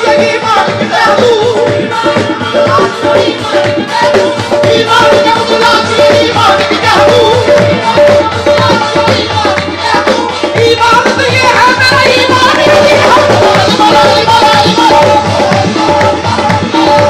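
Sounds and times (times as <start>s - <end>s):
harmonium: 0.0s - 17.0s
lead singer singing: 0.0s - 17.0s
tabla: 0.0s - 17.0s
group hand-clapping: 8.6s - 10.2s, 12.4s - 17.0s.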